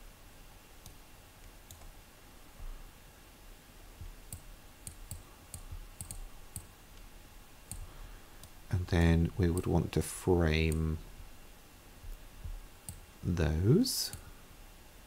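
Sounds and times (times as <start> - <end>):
computer mouse clicks: 0.8 - 1.9, 4.3 - 7.1, 7.7 - 8.6, 12.8 - 13.0.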